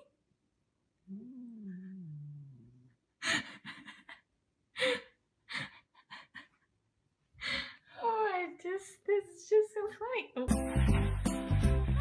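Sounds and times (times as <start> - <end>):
person laughing: 3.2 - 6.6.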